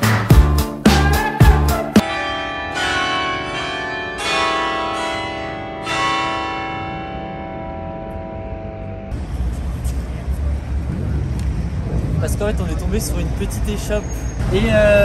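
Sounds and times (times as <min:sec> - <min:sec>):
music with drum beat: 0:00.0 - 0:02.0
church bells ringing: 0:02.0 - 0:09.2.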